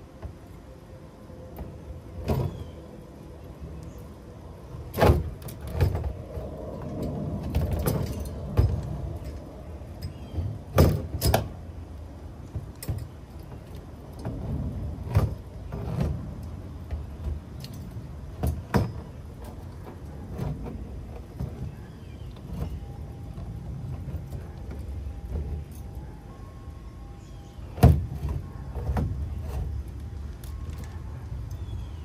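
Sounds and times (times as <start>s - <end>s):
steady low rumble: 0.0s - 32.0s
metal parts clicking and clinking: 4.9s - 11.6s, 17.2s - 21.4s.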